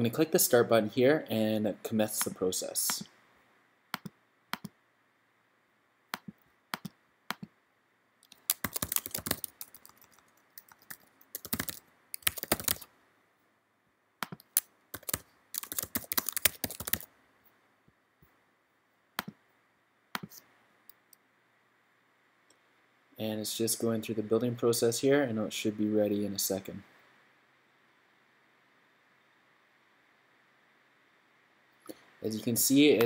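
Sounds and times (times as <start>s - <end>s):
mouse clicks: 3.9s - 4.8s, 6.1s - 7.5s, 14.2s - 15.2s, 19.2s - 19.4s, 20.2s - 21.2s
typing on computer keyboard: 8.2s - 12.9s, 14.2s - 17.1s.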